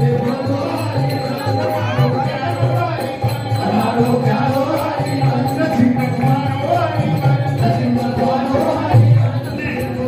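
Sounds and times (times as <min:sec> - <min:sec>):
jingling hand percussion: 0:00.0 - 0:10.0
voices singing devotional song: 0:00.0 - 0:10.0.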